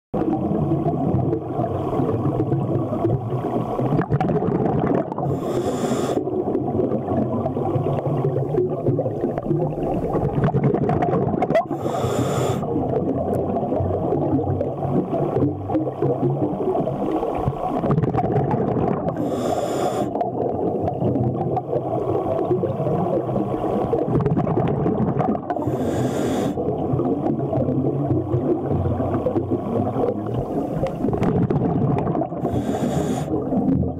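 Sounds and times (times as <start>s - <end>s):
exhaled bubbles hissing: 0.2s - 33.9s
muffled underwater rumble: 0.2s - 33.9s.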